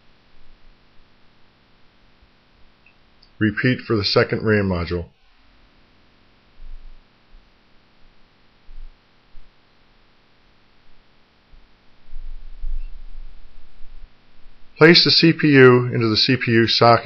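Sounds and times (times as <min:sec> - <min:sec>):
faint steady hiss: 0:00.0 - 0:17.0
dull low thumps: 0:06.6 - 0:07.5, 0:08.6 - 0:09.6, 0:10.9 - 0:14.8
low rumble: 0:11.6 - 0:14.8.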